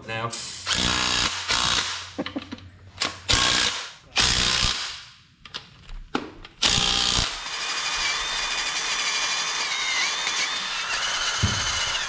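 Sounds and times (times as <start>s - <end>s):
cordless power driver running bolts: 6.6s - 12.0s.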